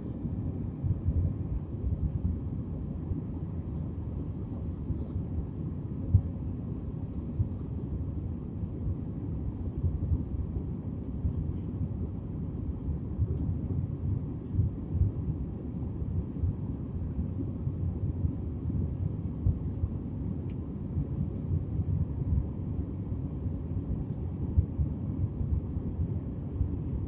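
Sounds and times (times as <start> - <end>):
airliner cabin engine rumble: 0.0 - 27.0.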